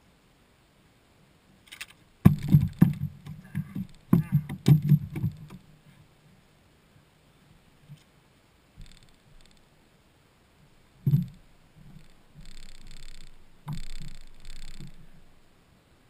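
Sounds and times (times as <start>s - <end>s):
rustling and shuffling: 1.6s - 6.5s, 10.5s - 15.6s
heavy thump on deck: 2.2s - 5.4s.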